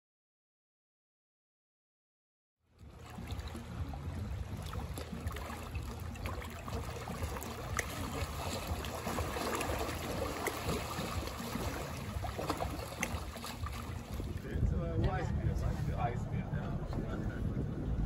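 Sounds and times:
waves lapping against rocks: 0:02.8 - 0:16.1.

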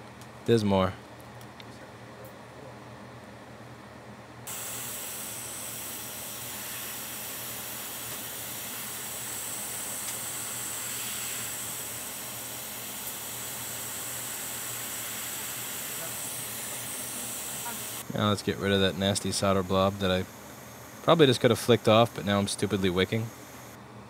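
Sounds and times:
hot air station switch: 0:04.5 - 0:18.2
hot air station blowing hiss: 0:04.5 - 0:23.8.

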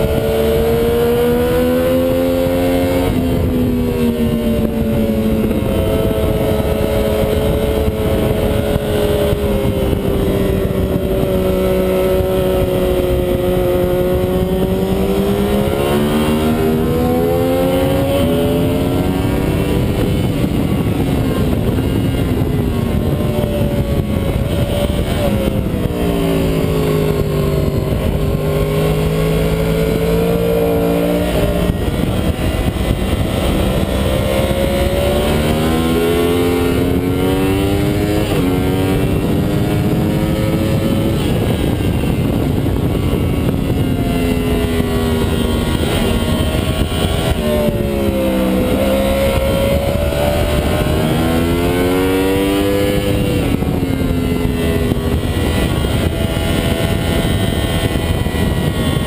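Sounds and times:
motorcycle engine running: 0:00.0 - 0:59.0
wind rush: 0:00.0 - 0:59.0.

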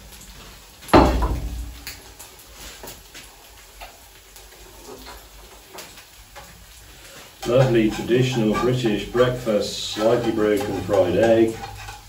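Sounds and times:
heavy clunk on wooden worktop: 0:00.9 - 0:01.6
metal utensil tapping frying pan: 0:07.4 - 0:12.0.

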